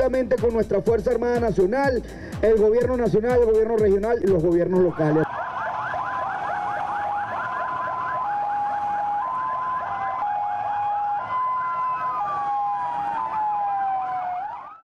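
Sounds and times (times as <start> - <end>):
fast yelp siren: 4.8 - 14.8
two-tone hi-lo siren: 4.9 - 14.8
wailing siren: 4.9 - 14.8.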